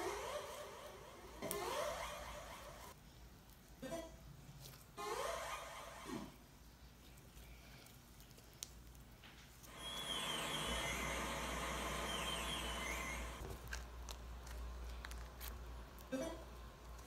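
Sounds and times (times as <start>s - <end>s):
slime crunching and squishing: 13.4s - 17.0s.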